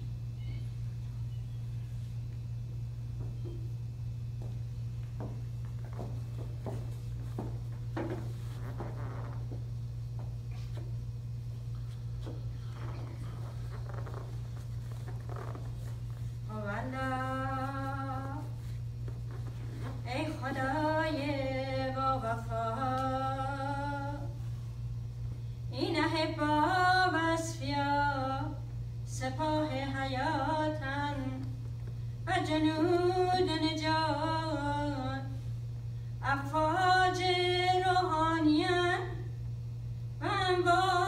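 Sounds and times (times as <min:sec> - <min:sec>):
steady low hum: 0:00.0 - 0:41.0
woman singing unaccompanied: 0:16.5 - 0:18.6, 0:20.0 - 0:24.4, 0:25.7 - 0:31.6, 0:32.2 - 0:35.4, 0:36.2 - 0:39.3, 0:40.2 - 0:41.0.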